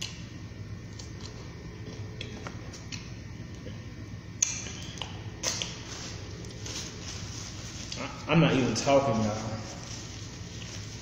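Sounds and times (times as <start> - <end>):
low steady hum: 0.0 - 11.0
lip smacks: 4.4 - 5.8.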